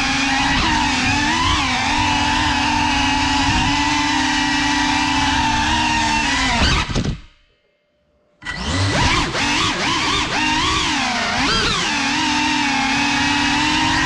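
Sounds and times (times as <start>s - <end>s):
quadcopter motors whining: 0.0s - 7.2s, 8.4s - 14.0s.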